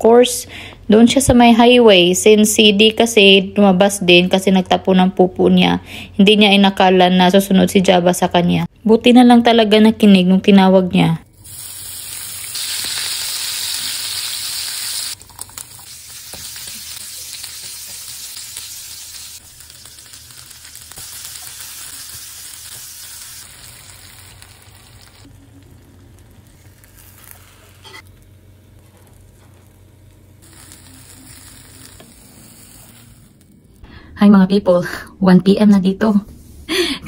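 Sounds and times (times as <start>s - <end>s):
meat sizzling in a frying pan: 11.4s - 28.0s, 30.4s - 33.5s.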